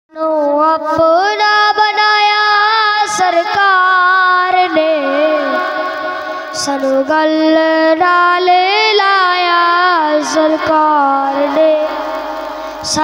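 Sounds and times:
boy singing into a microphone: 0:00.1 - 0:13.0
singer breath: 0:12.6 - 0:12.9.

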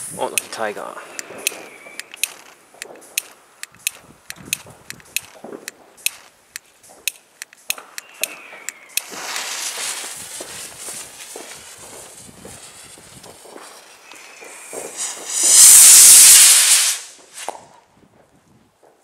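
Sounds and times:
firecrackers cracking: 0:00.0 - 0:19.0
falling whistle: 0:01.2 - 0:02.1, 0:08.0 - 0:09.1
rocket launching with rushing hiss: 0:06.8 - 0:17.9.

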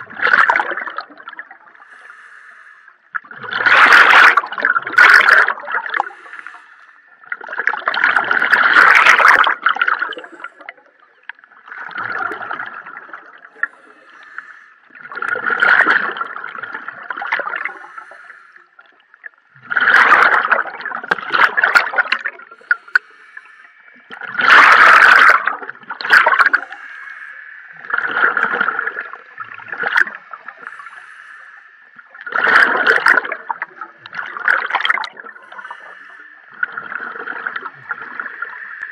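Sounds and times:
exhaled bubbles rushing underwater: 0:00.0 - 0:02.2, 0:03.1 - 0:06.6, 0:07.2 - 0:38.9
faint steady tone: 0:05.8 - 0:07.8, 0:09.6 - 0:15.3, 0:16.1 - 0:19.6, 0:21.9 - 0:24.3, 0:25.4 - 0:32.3, 0:33.2 - 0:38.9.

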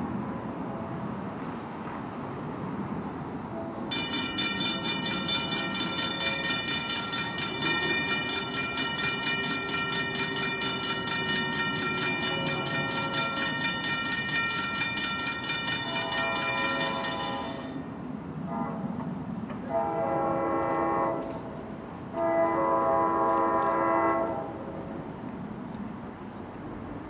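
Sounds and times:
diesel train rumble: 0:03.1 - 0:27.0
crossing bell ringing: 0:03.9 - 0:18.0
train horn: 0:15.8 - 0:17.8, 0:18.4 - 0:19.0, 0:19.6 - 0:24.6.

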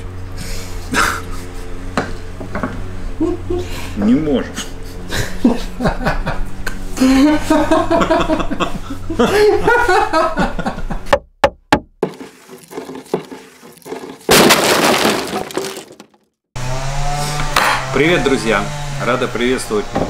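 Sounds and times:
man laughing: 0:00.9 - 0:01.7, 0:03.2 - 0:11.1.

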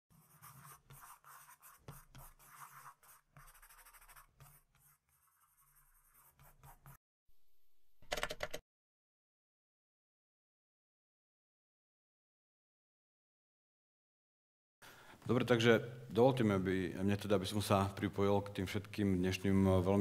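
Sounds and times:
pen scratching on paper: 0:00.1 - 0:07.0.

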